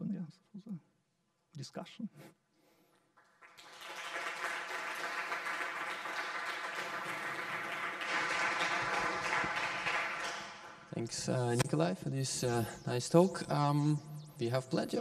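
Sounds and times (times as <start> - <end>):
audience applauding: 3.2 - 10.9.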